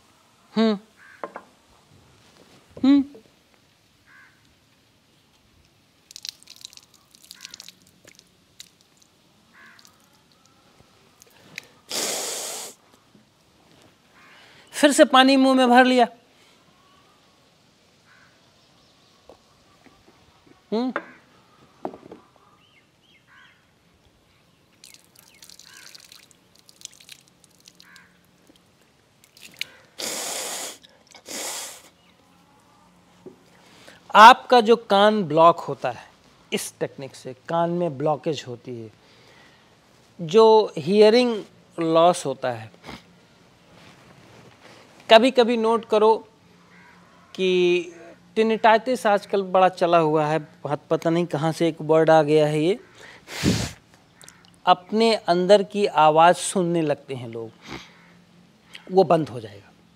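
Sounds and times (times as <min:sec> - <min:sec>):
water splashing and dripping on leaves: 0:06.0 - 0:10.6, 0:24.8 - 0:31.2
breath blown out through nose: 0:11.9 - 0:12.8, 0:30.0 - 0:31.9, 0:53.2 - 0:53.8.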